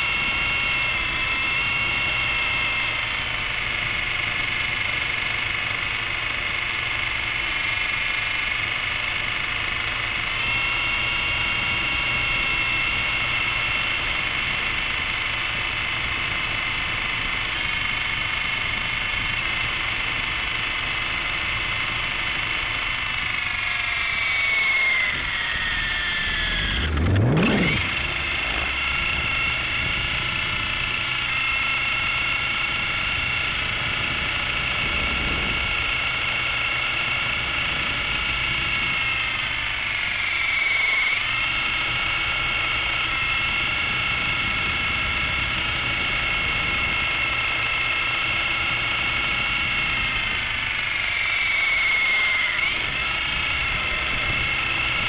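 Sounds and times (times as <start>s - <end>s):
rc helicopter rotor whining: 0.0s - 55.0s
short rising sweep: 26.2s - 28.3s.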